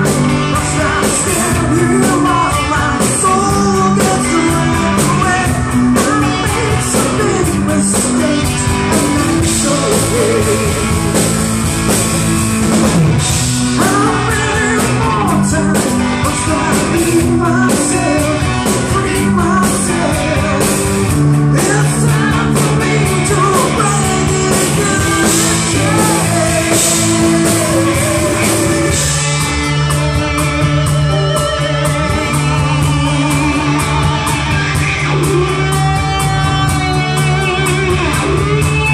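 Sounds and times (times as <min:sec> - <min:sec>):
live rock band playing: 0:00.0 - 0:38.9
woman singing: 0:00.1 - 0:11.0, 0:13.8 - 0:20.8, 0:21.5 - 0:29.3.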